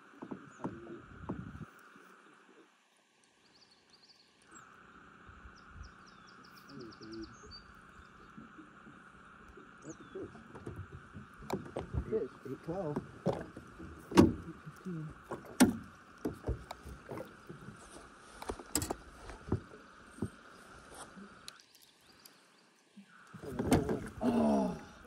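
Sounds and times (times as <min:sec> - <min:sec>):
gear knocking against boat: 0:00.0 - 0:01.6, 0:10.1 - 0:20.4, 0:23.4 - 0:24.3
voices: 0:06.6 - 0:07.5, 0:08.3 - 0:10.8, 0:11.4 - 0:15.5, 0:23.0 - 0:25.0.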